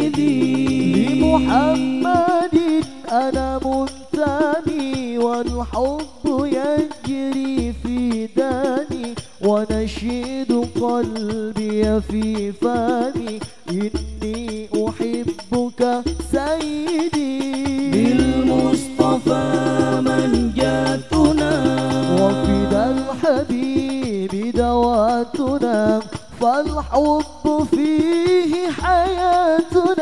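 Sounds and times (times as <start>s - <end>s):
group singing together: 0.0s - 2.8s, 17.9s - 23.3s
person singing ornamented melody: 0.0s - 3.1s, 17.9s - 23.4s.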